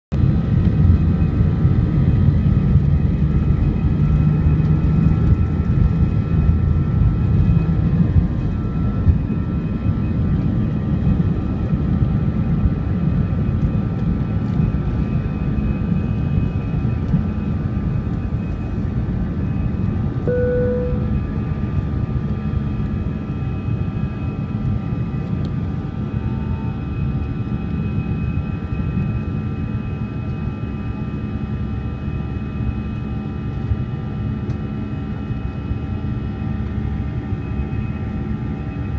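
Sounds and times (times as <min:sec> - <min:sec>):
jet engine rumble and whine: 0:00.1 - 0:38.9
brief tone: 0:19.4 - 0:21.6, 0:35.4 - 0:38.9.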